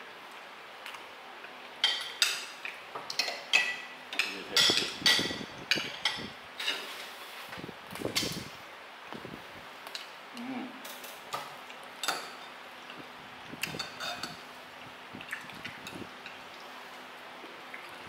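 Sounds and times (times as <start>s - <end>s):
cutlery clinking on plates: 1.8s - 7.0s, 10.8s - 12.5s, 13.7s - 14.4s.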